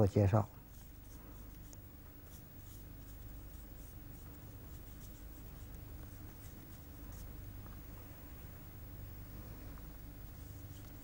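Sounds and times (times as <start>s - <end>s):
steady low hum: 0.0s - 11.0s
brush scratching on paper: 0.6s - 7.5s, 10.3s - 11.0s.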